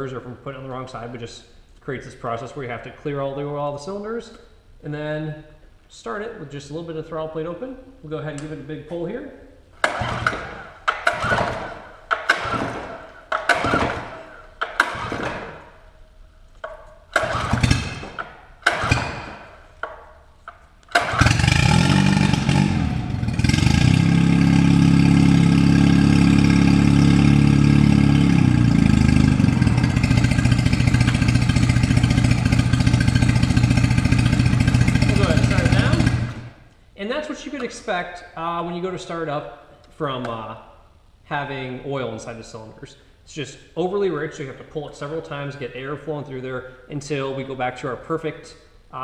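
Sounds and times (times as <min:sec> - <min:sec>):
pull-start cord pulls: 0:09.8 - 0:15.8, 0:16.6 - 0:23.9
outboard motor running: 0:09.9 - 0:12.8, 0:17.2 - 0:18.0, 0:21.0 - 0:36.5.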